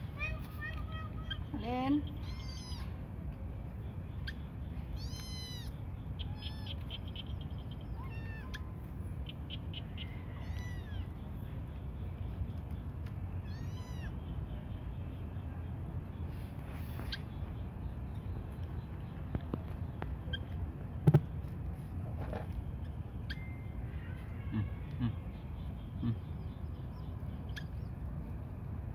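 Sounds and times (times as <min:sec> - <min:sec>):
steady low rumble: 0:00.0 - 0:28.9
kittens meowing: 0:02.2 - 0:02.9, 0:05.0 - 0:07.0, 0:07.9 - 0:08.8, 0:10.0 - 0:11.1, 0:13.4 - 0:14.2, 0:23.3 - 0:25.4.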